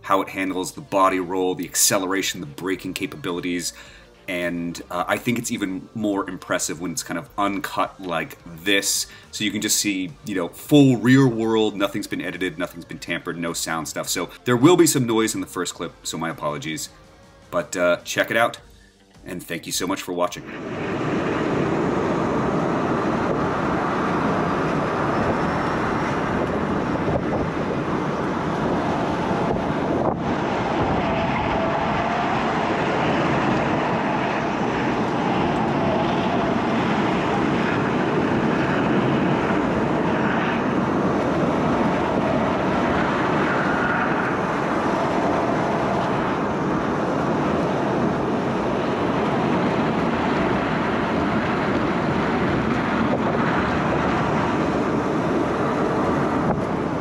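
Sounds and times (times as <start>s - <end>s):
wind rushing over microphone: 20.4s - 57.0s.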